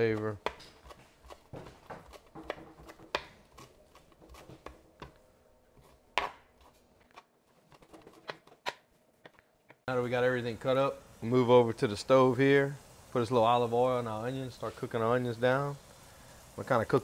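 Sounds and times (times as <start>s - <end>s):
knife chopping on cutting board: 0.0s - 5.2s, 5.8s - 6.6s.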